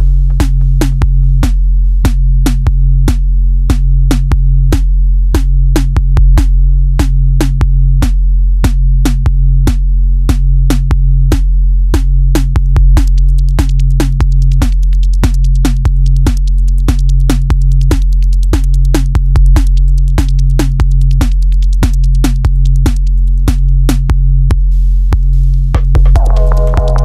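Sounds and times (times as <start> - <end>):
deep bass drone: 0.0 - 27.0
clicking drum machine beat: 12.4 - 24.6, 25.7 - 27.0.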